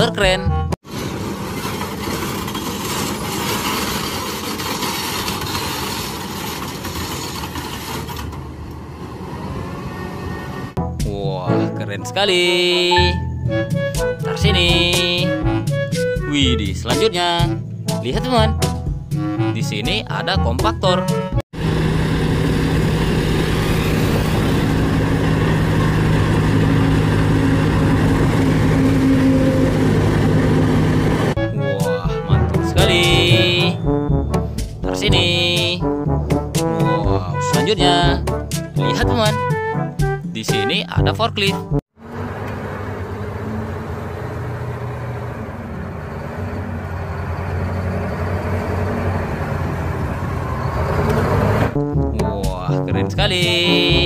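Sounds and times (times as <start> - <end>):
road roller diesel engines: 0.0 - 10.8, 21.6 - 36.5, 42.0 - 52.0.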